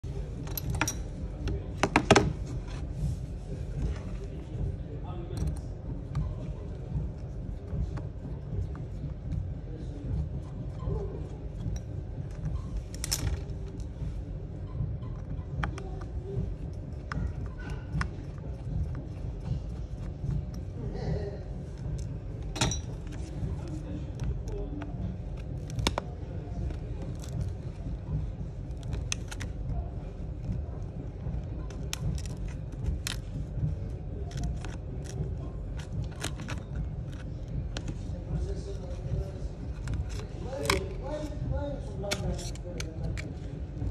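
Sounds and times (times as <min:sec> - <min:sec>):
low background rumble: 0:00.0 - 0:43.9
screwdriver clicking and scraping: 0:42.1 - 0:43.3.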